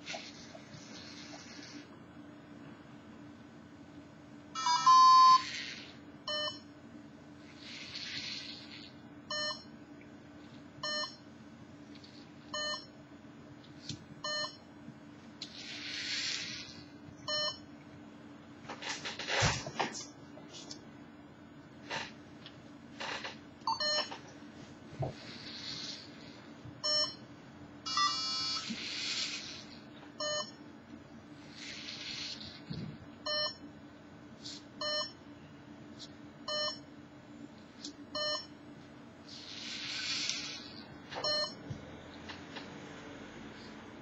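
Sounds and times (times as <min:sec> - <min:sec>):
short electronic beeps: 0:04.6 - 0:05.6, 0:41.2 - 0:41.6.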